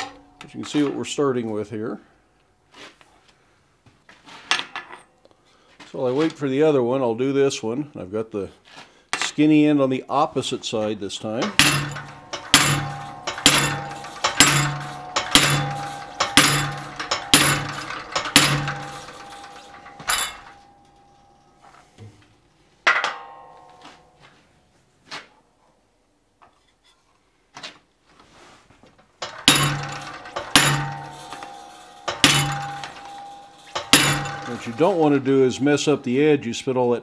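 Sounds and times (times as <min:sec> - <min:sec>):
hammer blows ringing on steel: 0:11.4 - 0:21.4, 0:29.3 - 0:36.2.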